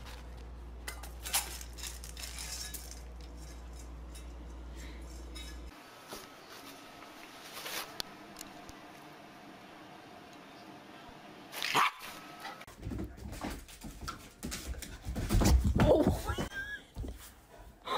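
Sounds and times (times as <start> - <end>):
steady low hum: 0.0 - 11.5
kibble clinking in metal bowl: 0.8 - 5.7.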